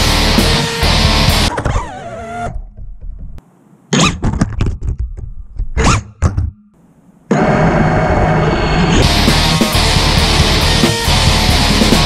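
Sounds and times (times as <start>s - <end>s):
heavy metal music: 0.0s - 1.5s, 7.3s - 12.0s.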